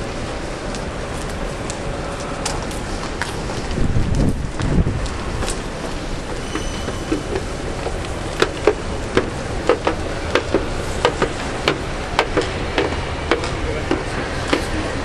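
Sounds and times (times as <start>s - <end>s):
station concourse hum: 0.0s - 15.0s
footsteps on hard floor: 3.0s - 14.8s.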